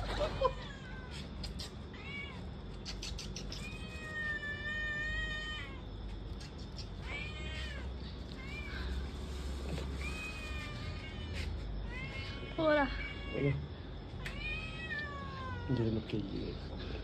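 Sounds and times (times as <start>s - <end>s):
cat meowing: 1.9s - 2.4s, 7.0s - 9.0s, 10.0s - 13.6s, 14.2s - 15.9s.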